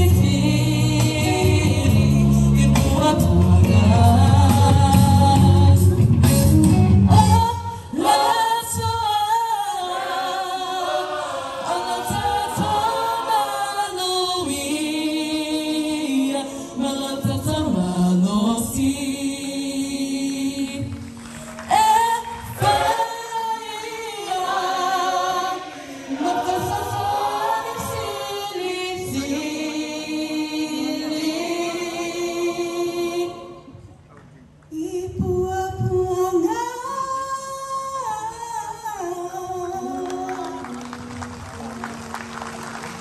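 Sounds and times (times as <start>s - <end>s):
choir singing a carol: 0.0s - 5.4s, 7.2s - 21.1s, 21.7s - 33.9s.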